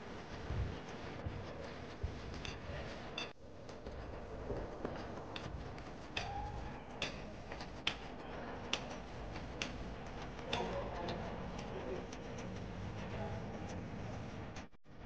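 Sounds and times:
low background noise: 0:00.0 - 0:15.0.

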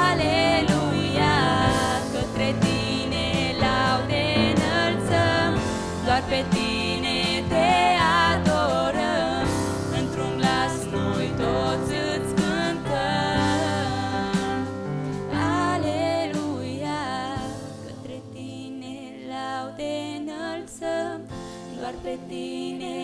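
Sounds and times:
electric keyboard sustained notes: 0:00.0 - 0:23.0
women singing worship song: 0:00.0 - 0:23.0.

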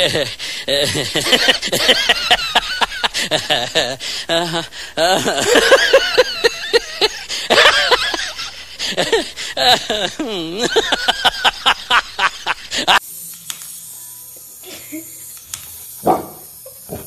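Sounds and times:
high-pitched voice laughing: 0:09.6 - 0:13.0.

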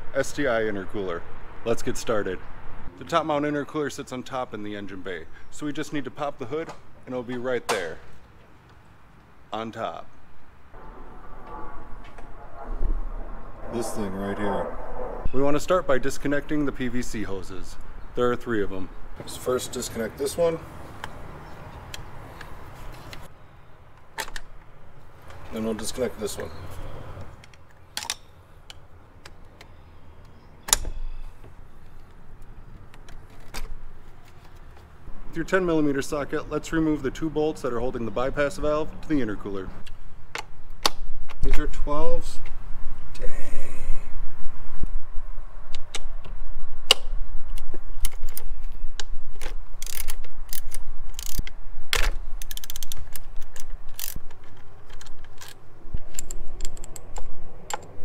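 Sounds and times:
screwdriver clicks and scrapes: 0:49.4 - 0:51.6, 0:52.4 - 0:57.9.

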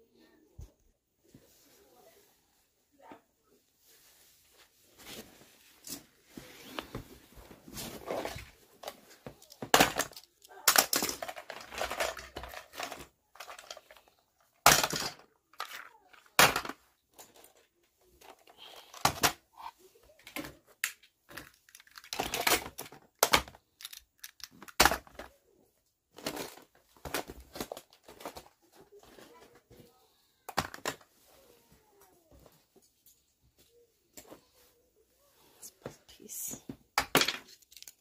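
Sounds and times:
plastic toys knocking together: 0:08.8 - 0:19.5, 0:20.2 - 0:25.3, 0:30.5 - 0:31.1, 0:37.0 - 0:38.0.

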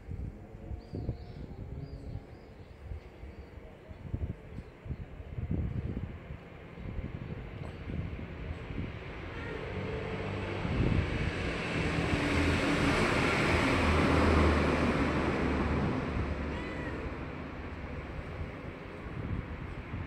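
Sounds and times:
vehicle passing by: 0:07.9 - 0:20.0.

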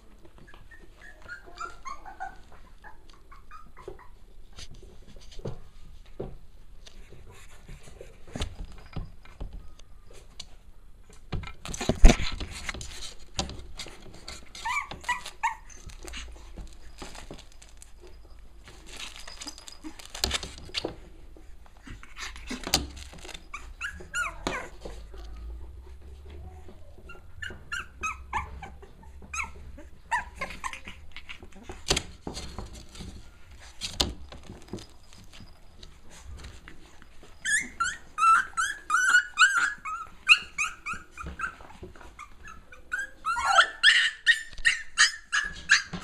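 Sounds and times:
scrabbling and rustling: 0:00.0 - 0:46.0
puppies whimpering: 0:00.4 - 0:04.3, 0:14.4 - 0:18.4, 0:21.8 - 0:32.1, 0:34.8 - 0:46.0.

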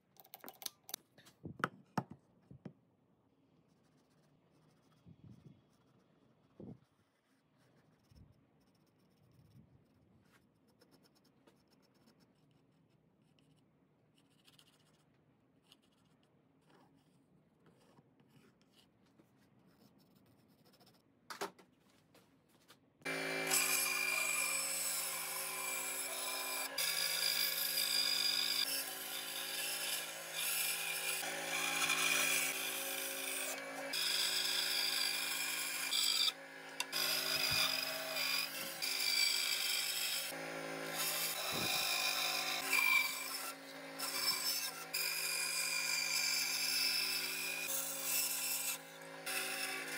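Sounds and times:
pencil scratching: 0:03.6 - 0:21.1
band saw cutting wood: 0:23.0 - 0:49.9.

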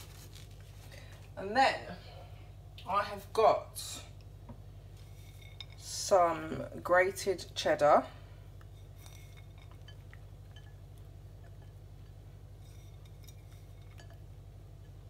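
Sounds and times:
steady low hum: 0:00.0 - 0:15.0
cheese sprinkling clicks and clinks: 0:08.6 - 0:15.0.

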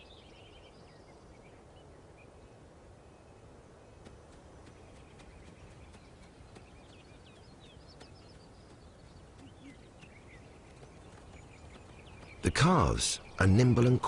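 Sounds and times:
small birds chirping: 0:00.0 - 0:14.0
faint hoof taps: 0:04.0 - 0:12.7.

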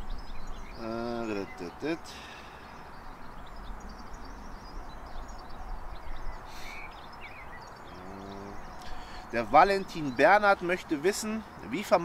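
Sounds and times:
birds chirping and singing: 0:00.0 - 0:12.0.

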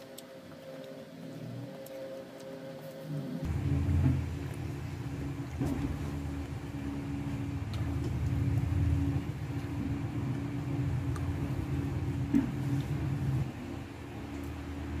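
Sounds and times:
faint constant hum: 0:00.0 - 0:15.0
motor rumble: 0:03.3 - 0:15.0.

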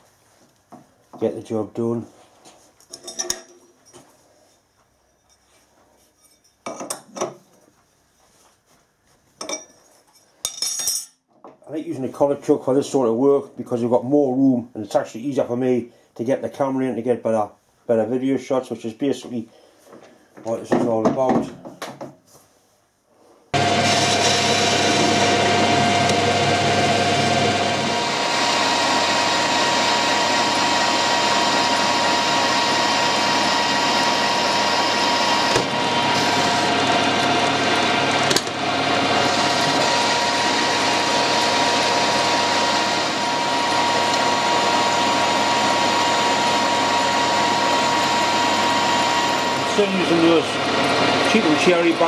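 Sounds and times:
metal lathe cutting steel: 0:23.6 - 0:52.0.

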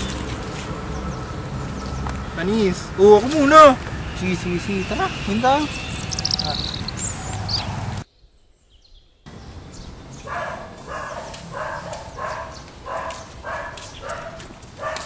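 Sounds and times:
faint outdoor background: 0:00.0 - 0:15.0
dog barking: 0:10.2 - 0:15.0.

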